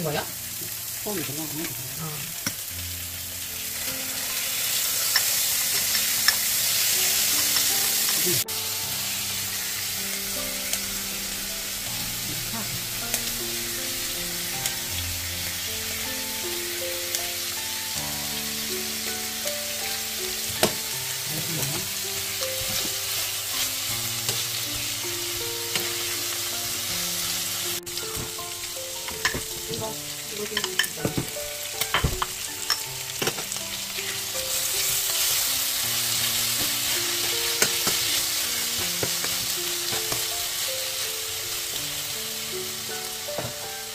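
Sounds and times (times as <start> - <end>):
meat sizzling in a pan: 0.0 - 43.9
utensils clicking against pan: 4.3 - 8.4, 29.1 - 33.8, 36.6 - 40.3.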